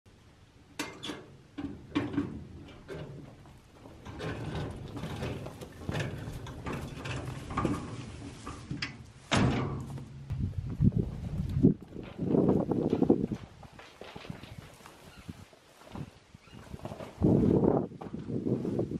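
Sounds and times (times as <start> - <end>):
metal cart rattling over gravel: 0.8 - 15.2.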